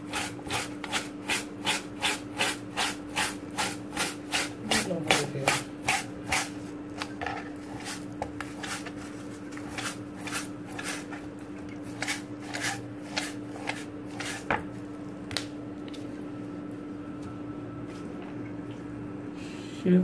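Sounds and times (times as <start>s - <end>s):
fish scraping on wooden board: 11.9s - 14.5s.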